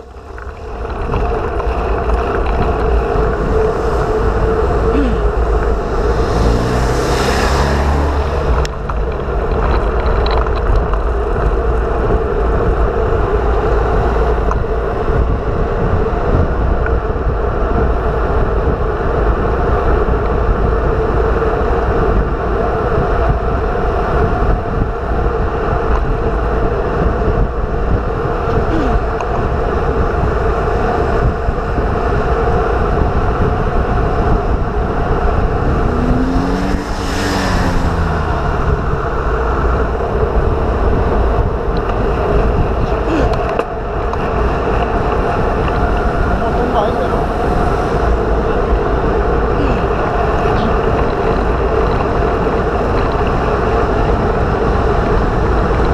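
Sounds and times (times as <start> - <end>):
wind rushing over microphone: 0.0 - 55.9.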